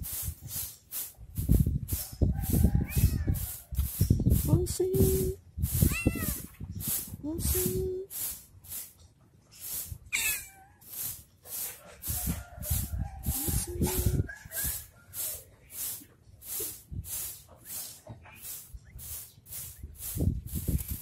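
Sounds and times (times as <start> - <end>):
pulsing hiss: 2.5 - 9.0, 10.8 - 20.9
kitten meowing: 2.9 - 3.4, 5.9 - 6.5, 10.1 - 10.8.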